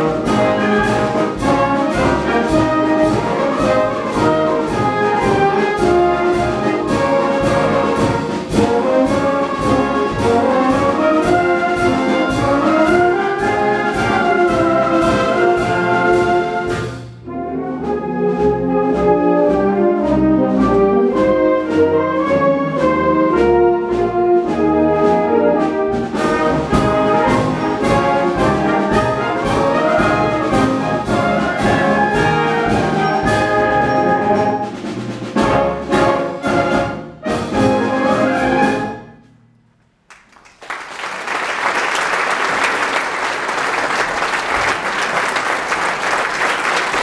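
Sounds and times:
wind band playing march: 0.0s - 39.3s, 40.7s - 47.0s
audience applause: 40.1s - 47.0s.

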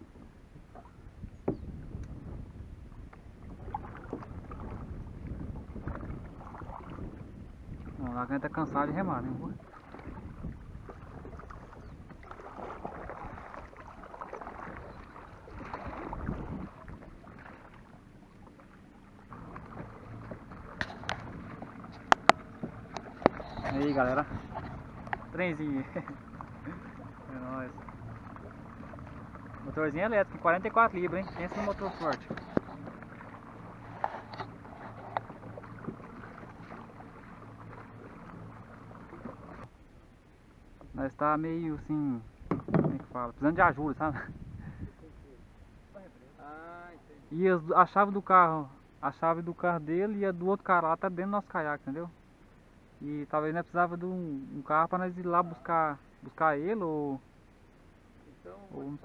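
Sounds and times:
wind rumble on microphone: 0.0s - 18.0s, 19.2s - 39.7s, 42.1s - 45.4s
paddle splashing through water: 0.1s - 8.1s, 9.2s - 39.8s
light knocks: 42.4s - 43.1s.

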